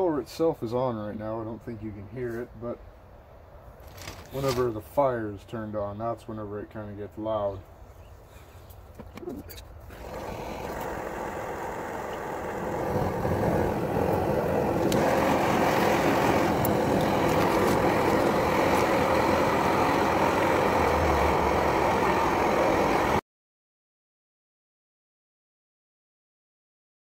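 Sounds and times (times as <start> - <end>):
forge blower rushing: 9.9 - 23.2.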